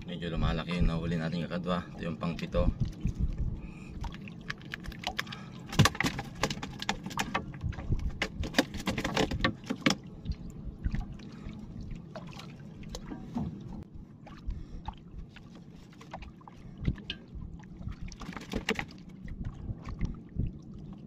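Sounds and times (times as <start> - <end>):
low rumble of water: 0.0 - 21.0
clicks and knocks in boat: 4.4 - 10.1, 18.1 - 19.1.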